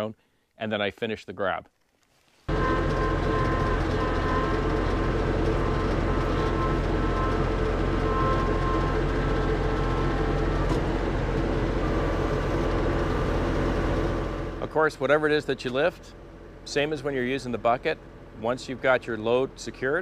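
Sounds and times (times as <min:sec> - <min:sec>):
thin whine: 0:02.5 - 0:15.9
tractor diesel engine running: 0:02.5 - 0:20.0.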